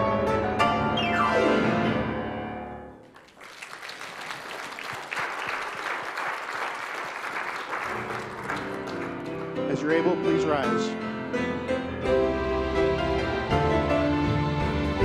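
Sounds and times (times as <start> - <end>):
grand piano: 0.0 - 3.2, 7.4 - 15.0
congregation applauding: 3.0 - 10.0.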